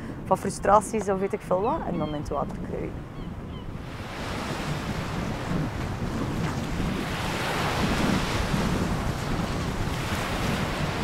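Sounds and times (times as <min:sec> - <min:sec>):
wind buffeting microphone: 0:00.0 - 0:11.0
surf breaking on shore: 0:03.8 - 0:11.0.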